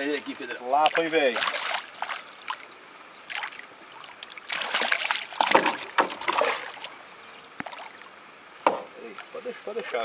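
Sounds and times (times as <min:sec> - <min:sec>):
fish thrashing and splashing: 0:00.8 - 0:02.7, 0:03.3 - 0:06.9.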